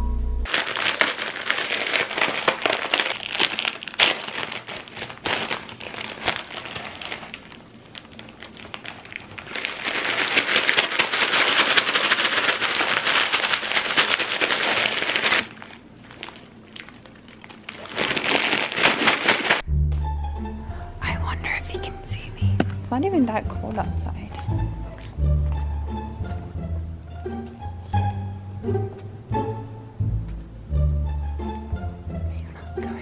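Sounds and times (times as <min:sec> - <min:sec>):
plastic packet crinkling: 0:00.5 - 0:19.7.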